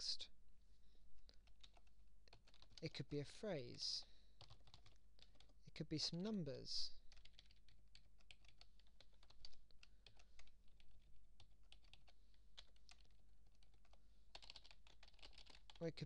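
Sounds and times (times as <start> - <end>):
keyboard typing: 1.2 - 2.9, 4.4 - 5.6, 7.1 - 15.8.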